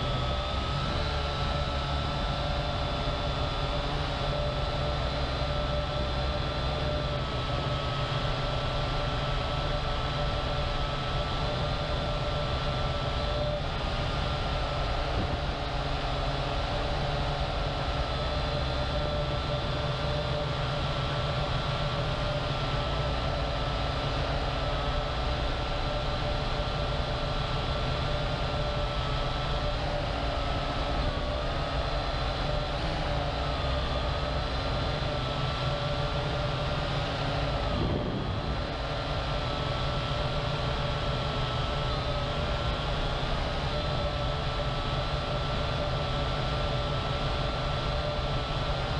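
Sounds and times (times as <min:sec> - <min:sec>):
drone motors whining: 0:00.0 - 0:48.9
rumble of rushing air: 0:35.9 - 0:43.5.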